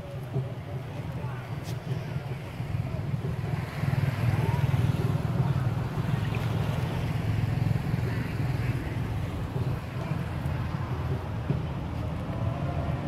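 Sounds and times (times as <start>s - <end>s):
low rumble of outdoor background noise: 0.0s - 13.0s.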